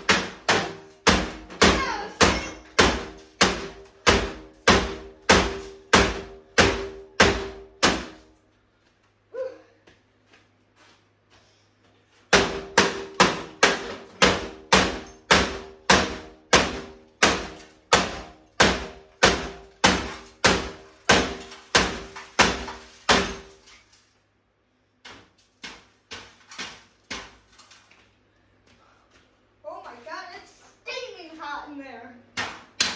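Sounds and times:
hammer striking television: 0.0s - 8.2s, 12.3s - 23.6s.

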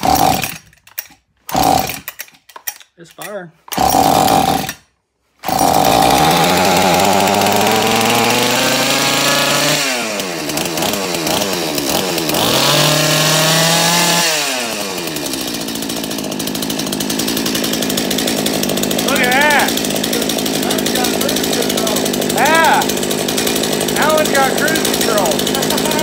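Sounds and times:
chainsaw engine revving and idling: 0.0s - 2.2s, 3.7s - 4.8s, 5.4s - 26.0s.

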